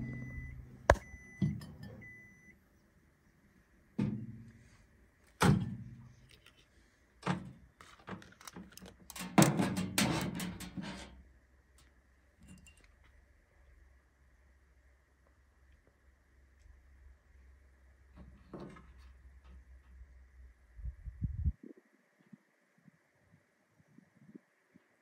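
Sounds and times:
faint microwave beeps: 0.0 - 2.6.

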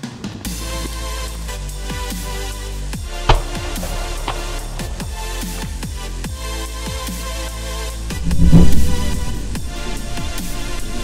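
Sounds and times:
deep kick drum: 3.3 - 6.0.

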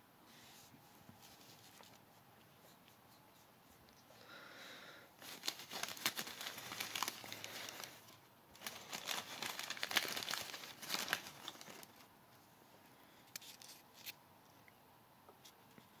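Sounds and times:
packing material crinkling: 5.2 - 12.1.

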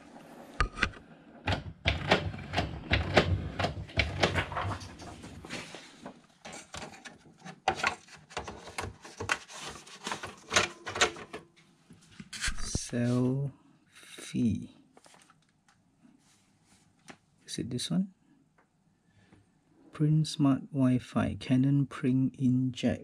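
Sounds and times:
printer tray clicking and knocking: 0.6 - 5.3
paper rustling: 4.6 - 11.3, 14.9 - 17.2.

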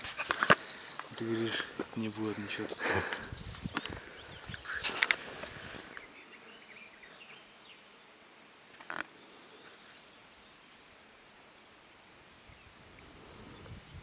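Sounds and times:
fishing rod clicking and rustling: 0.0 - 5.2.

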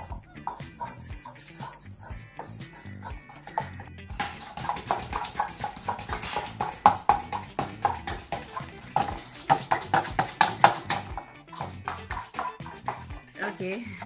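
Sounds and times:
spoon clinking in metal bowl: 0.4 - 3.8.

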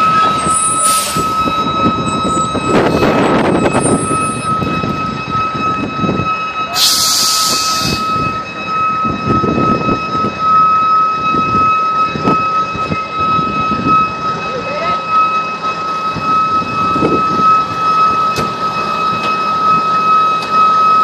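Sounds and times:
high-pitched whine: 0.0 - 21.0
hissing burst: 6.7 - 8.3.

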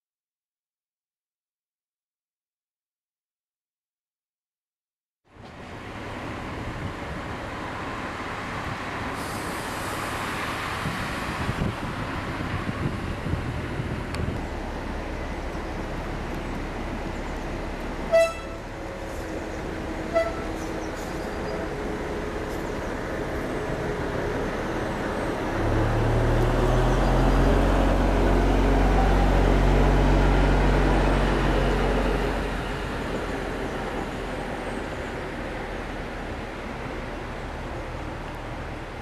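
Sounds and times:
diesel locomotive engine rumble: 5.3 - 39.0
locomotive horn toots: 18.1 - 18.8, 20.0 - 20.7.

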